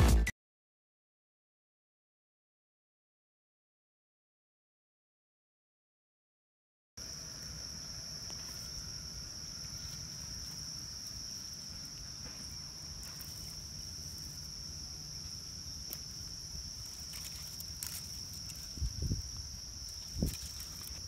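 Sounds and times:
insects chirring: 7.0 - 21.0.

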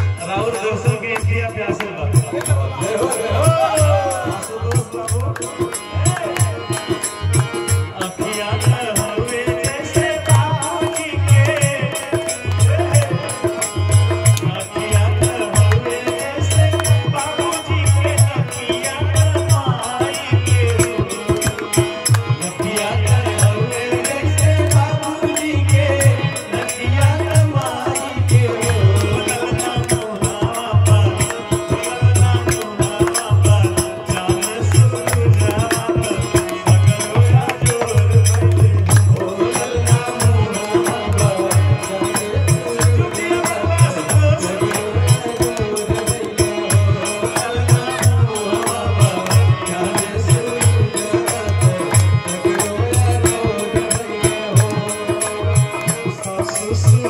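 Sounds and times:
harmonium: 0.0 - 57.0
jingling percussion: 0.0 - 57.0
man singing: 0.0 - 57.0.

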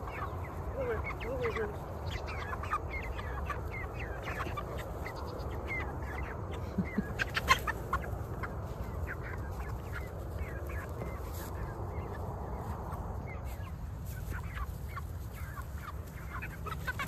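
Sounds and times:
chickens clucking and peeping: 0.0 - 17.0.

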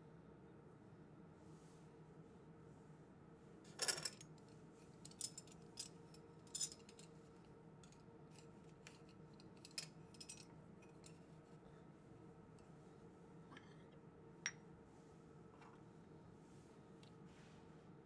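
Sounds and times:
faint steady hum: 0.0 - 18.0
metal parts clicking and clinking: 3.7 - 4.2, 5.1 - 7.1, 7.8 - 11.2.

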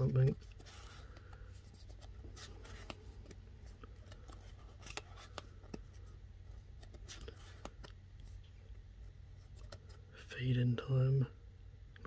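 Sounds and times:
cards sliding and clicking: 0.0 - 8.5
low steady hum: 0.0 - 12.0.

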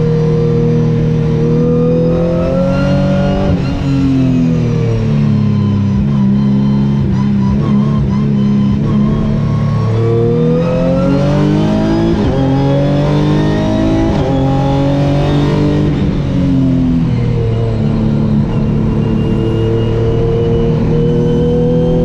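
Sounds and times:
race car engine accelerating: 0.0 - 22.0.

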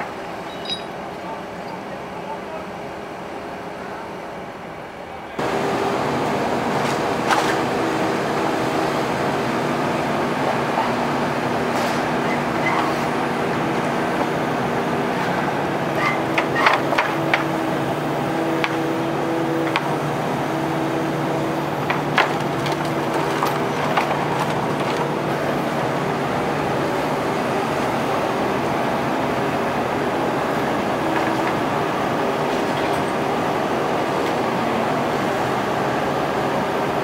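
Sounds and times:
excavator engine and hydraulics droning: 0.0 - 37.0
sharp knocks and cracks: 21.8 - 25.1.

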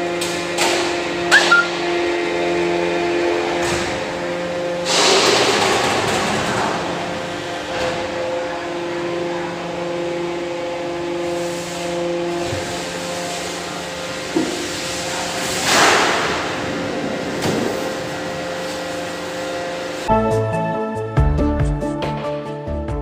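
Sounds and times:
hydraulic press humming: 1.3 - 2.0.

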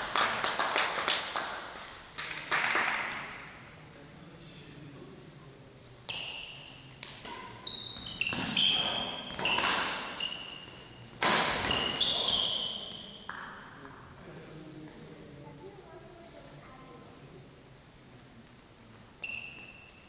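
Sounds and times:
shoes squeaking on floor: 6.1 - 13.4, 19.2 - 20.0
rackets hitting shuttlecock: 6.1 - 13.7.

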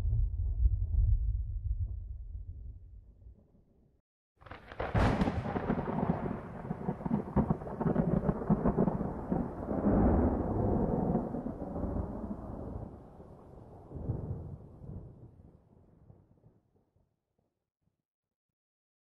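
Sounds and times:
thunder crack: 4.4 - 13.0
rolling thunder rumble: 4.5 - 15.2.

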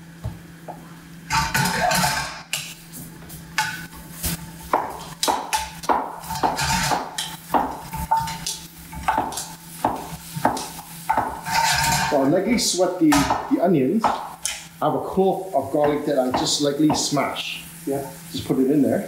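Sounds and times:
onions sweating in pan: 0.8 - 19.0
spatula knocking metal pan: 4.8 - 12.1, 13.1 - 14.6, 15.8 - 17.2.

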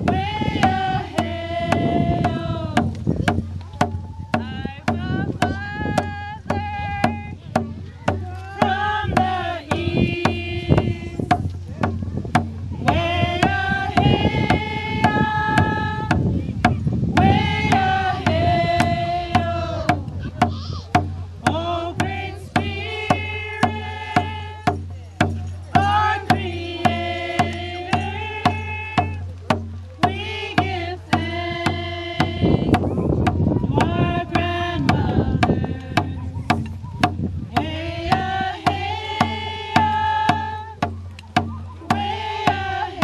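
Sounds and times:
frame drum beat: 0.0 - 43.0
women singing together: 0.0 - 43.0.

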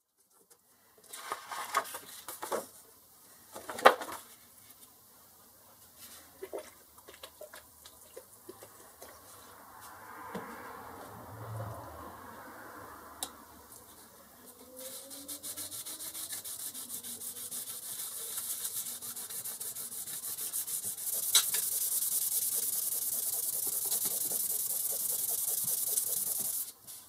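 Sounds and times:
metal plate wet sanding: 14.6 - 26.7.

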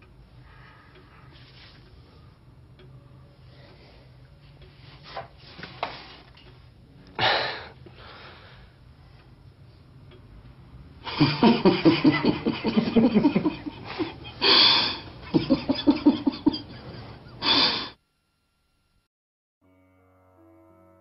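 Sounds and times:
people laughing: 11.0 - 17.5.

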